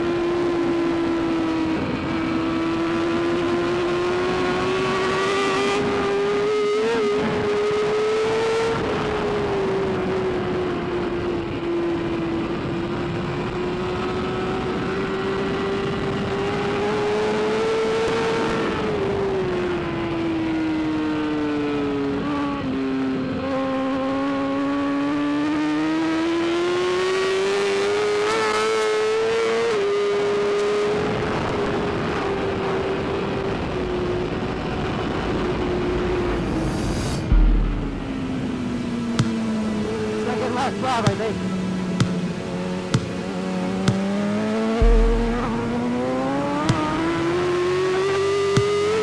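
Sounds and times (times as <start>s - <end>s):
wind noise: 0.0s - 20.8s, 30.8s - 40.3s
motorcycle engine at high revs: 0.0s - 49.0s.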